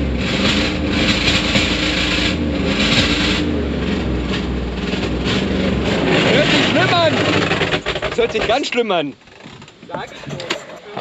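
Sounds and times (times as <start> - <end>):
engine running rough: 0.0 - 8.5.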